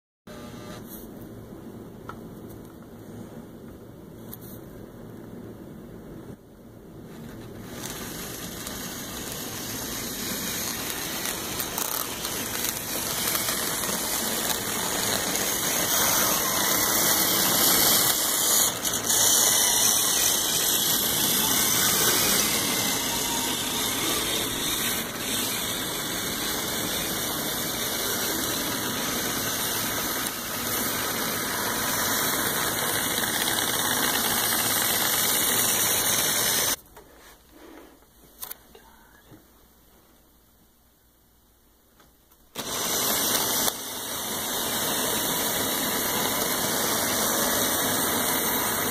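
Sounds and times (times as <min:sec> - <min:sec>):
model locomotives whirring on track: 0:07.2 - 0:36.8, 0:42.6 - 0:48.9.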